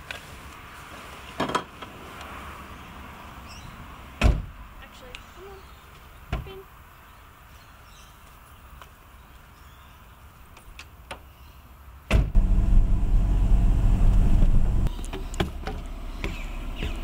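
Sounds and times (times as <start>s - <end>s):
engine running with low hum: 12.3s - 17.0s.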